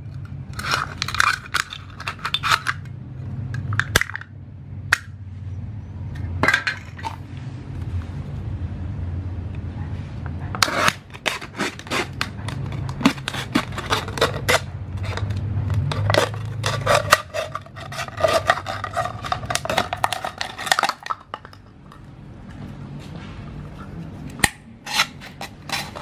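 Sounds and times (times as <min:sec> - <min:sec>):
knife cutting plastic bottle: 0:10.6 - 0:21.6, 0:24.4 - 0:26.0.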